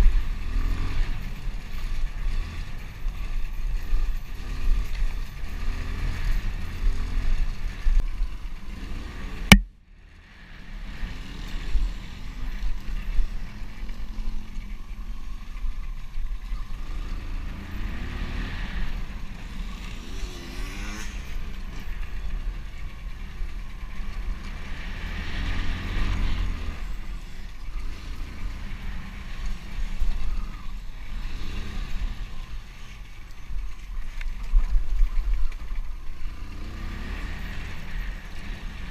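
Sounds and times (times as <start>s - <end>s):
wind and vibration rumble: 0.0s - 38.9s
motocross bike engine revving: 16.5s - 33.1s, 36.2s - 38.9s.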